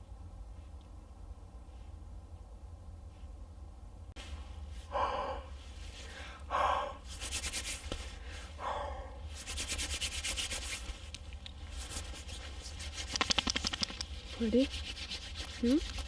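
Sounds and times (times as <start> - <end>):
short breaths: 4.8 - 7.1, 8.0 - 9.3.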